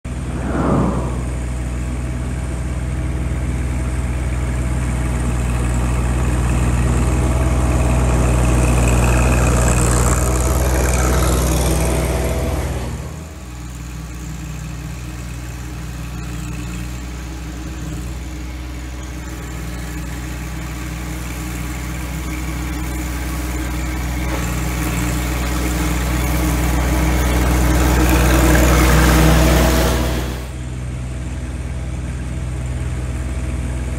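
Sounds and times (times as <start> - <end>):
mower cutting tall grass: 5.4 - 30.5.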